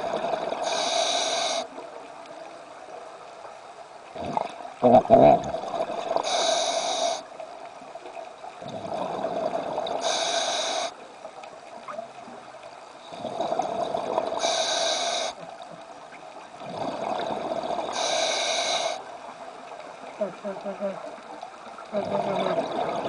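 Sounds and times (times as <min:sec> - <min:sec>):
diver breathing through regulator: 0:00.6 - 0:01.7, 0:06.2 - 0:07.2, 0:10.0 - 0:11.0, 0:14.3 - 0:15.4, 0:17.9 - 0:19.0.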